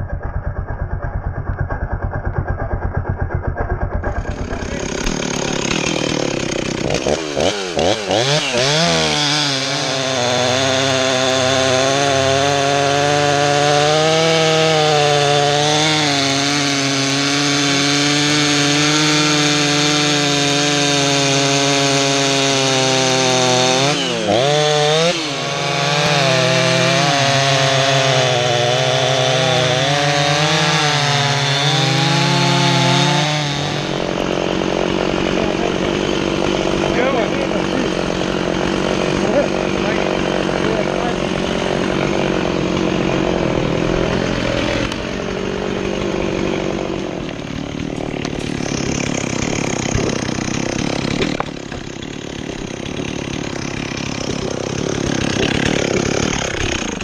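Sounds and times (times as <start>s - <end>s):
chainsaw cutting log: 0.0s - 57.0s.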